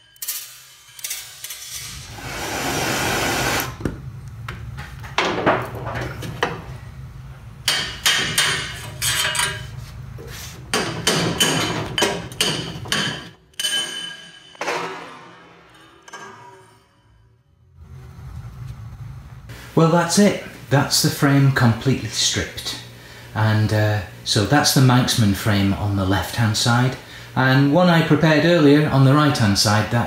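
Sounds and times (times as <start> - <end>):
hammer tapping on metal: 7.7 - 8.8.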